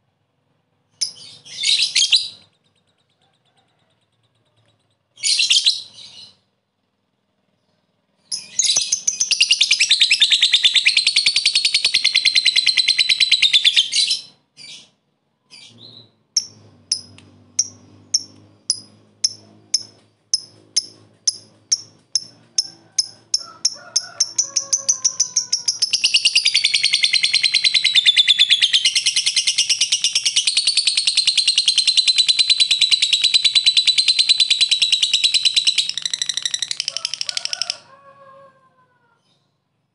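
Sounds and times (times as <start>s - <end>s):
lovebird ticking chirps: 1.0s - 1.4s, 16.4s - 37.5s
lovebird chattering trill: 8.3s - 14.4s, 15.6s - 37.8s.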